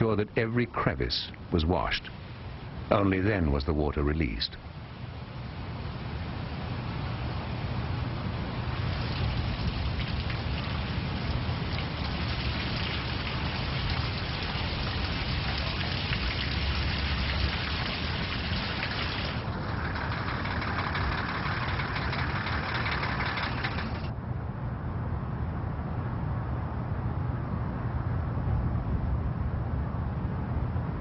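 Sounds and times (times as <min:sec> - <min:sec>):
water gushing and splashing: 0:08.6 - 0:24.1.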